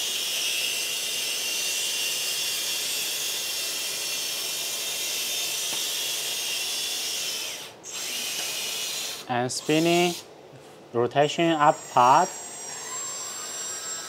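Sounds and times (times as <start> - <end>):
hydraulic pump whine and hiss: 7.6 - 10.2.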